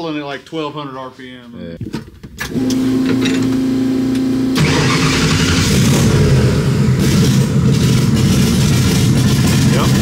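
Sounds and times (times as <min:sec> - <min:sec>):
car engine running loudly: 0:03.5 - 0:10.0
starter motor cranking: 0:04.6 - 0:06.2.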